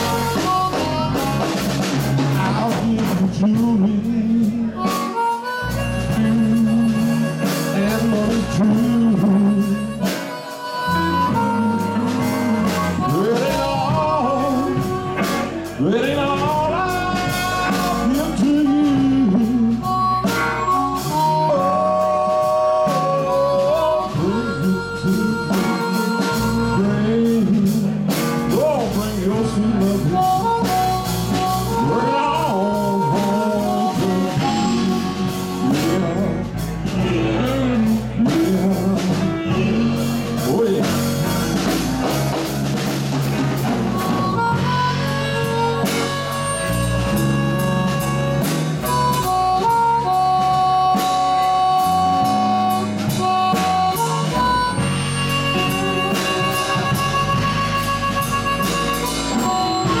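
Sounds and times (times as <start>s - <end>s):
man singing: 0.0s - 42.8s
blues harmonica: 0.0s - 60.0s
electric guitars: 0.0s - 60.0s.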